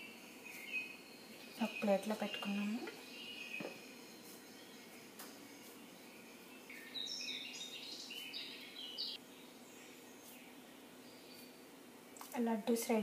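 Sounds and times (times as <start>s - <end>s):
bird chirping: 0.0s - 11.7s.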